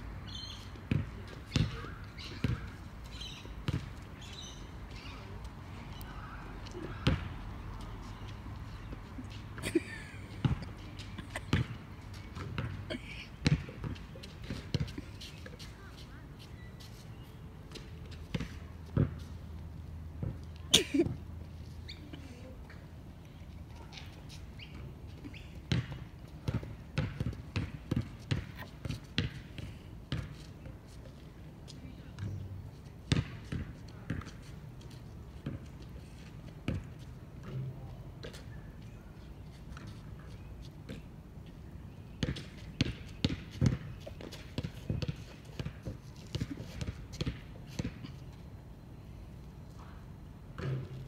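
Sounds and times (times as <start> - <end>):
basketball bouncing on hard court: 0.9 - 2.7, 3.7 - 3.9, 7.0 - 7.3, 10.4 - 10.6, 11.5 - 11.8, 12.4 - 12.8, 13.4 - 14.9, 18.3 - 19.2, 25.7 - 30.4, 33.1 - 34.3, 42.2 - 48.0.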